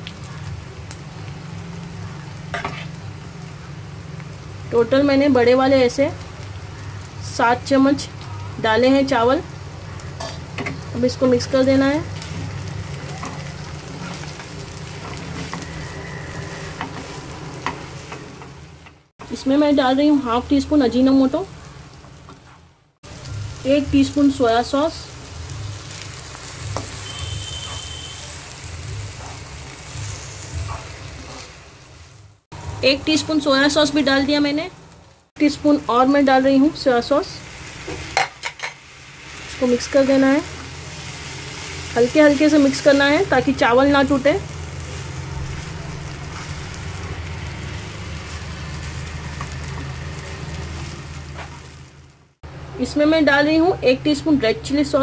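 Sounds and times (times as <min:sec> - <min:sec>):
rice sizzling in oil: 0:00.0 - 0:55.0
spatula stirring in pan: 0:02.5 - 0:03.0, 0:12.2 - 0:18.6.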